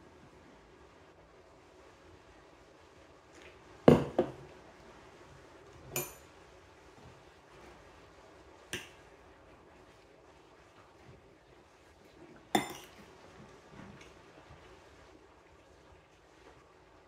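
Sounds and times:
wine glass set down on table: 3.9 - 4.4.

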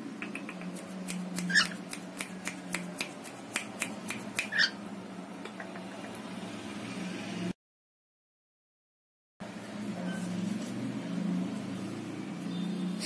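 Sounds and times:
cockatiel hissing: 1.4 - 1.8.

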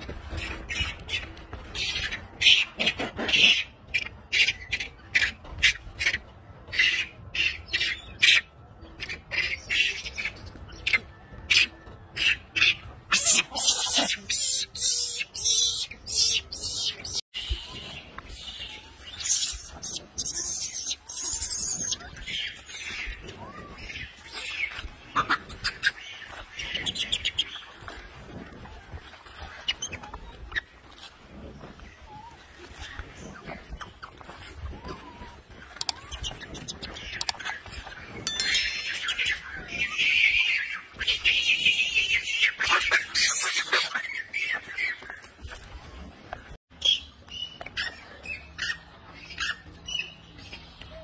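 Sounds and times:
monkeys chirping and squeaking: 0.3 - 28.6, 29.3 - 45.6
macaques giving harsh calls: 1.8 - 8.4, 10.8 - 17.2, 18.5 - 27.6
rustling in dry leaves: 13.2 - 46.6.

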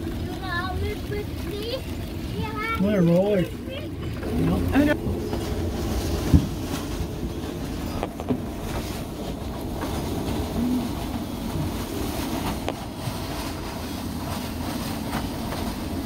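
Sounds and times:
choppy waves: 0.0 - 16.0
storm wind buffeting microphone: 3.6 - 16.0.

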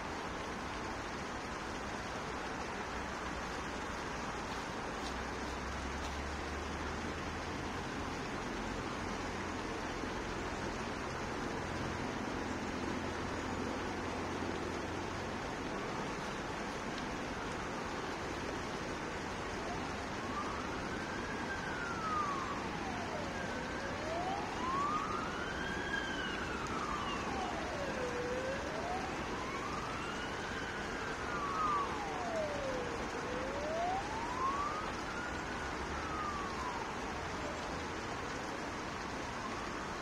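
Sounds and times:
steady background hiss: 0.0 - 40.0
emergency vehicle siren wailing: 7.8 - 40.0.

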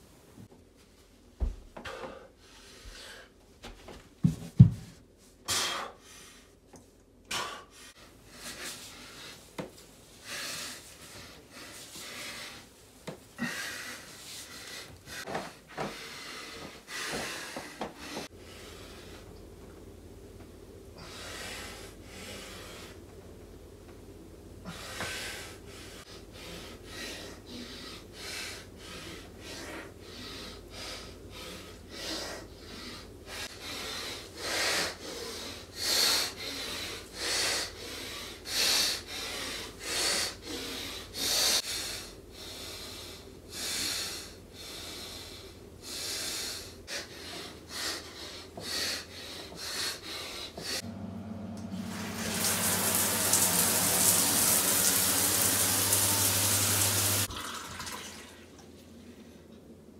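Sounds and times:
man breathing hard: 1.8 - 3.4, 5.4 - 6.6, 7.2 - 19.4, 20.9 - 23.1, 24.6 - 50.8
shower water running: 50.9 - 58.7.

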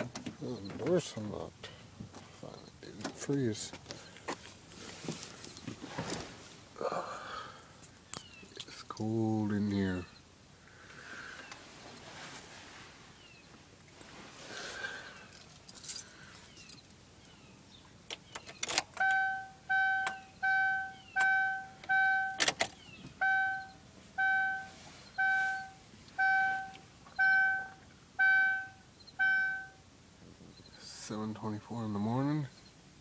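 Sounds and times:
keys jingling in ignition: 15.2 - 17.4, 18.1 - 23.8
dashboard warning chime: 19.0 - 29.8.

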